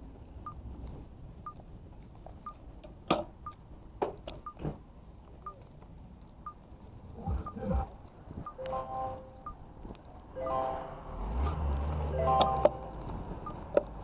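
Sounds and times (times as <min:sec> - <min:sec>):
faint steady rumble: 0:00.0 - 0:14.0
low thuds: 0:07.2 - 0:08.5.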